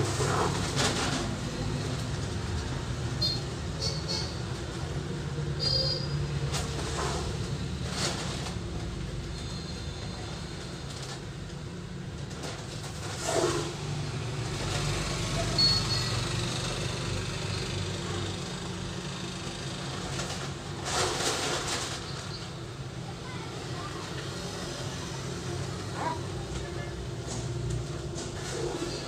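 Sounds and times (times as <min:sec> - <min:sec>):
plastic bucket scraping cement powder: 0:12.8 - 0:13.9.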